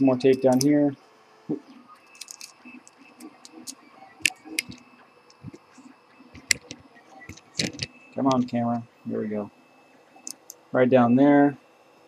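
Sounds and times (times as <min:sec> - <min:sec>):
hands clicking and rustling tape: 0:02.2 - 0:05.6, 0:06.4 - 0:08.6.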